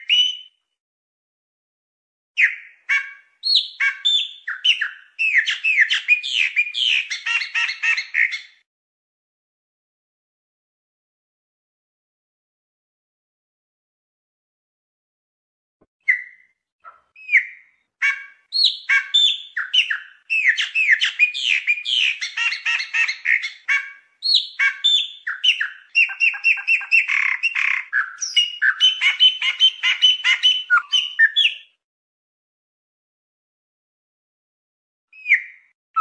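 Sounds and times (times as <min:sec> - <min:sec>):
blackbird singing: 0:00.0 - 0:00.6, 0:02.4 - 0:08.6, 0:16.0 - 0:31.8, 0:35.2 - 0:36.0.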